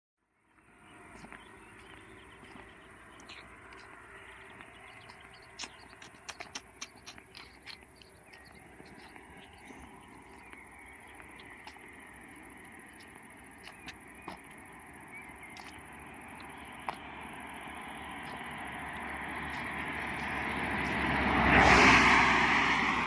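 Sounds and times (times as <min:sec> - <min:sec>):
sharp clicks and taps: 0:04.6 - 0:09.3.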